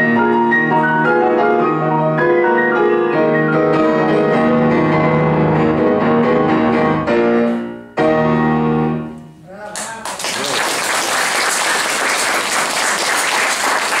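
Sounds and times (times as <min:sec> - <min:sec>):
audience applauding: 0:09.7 - 0:14.0.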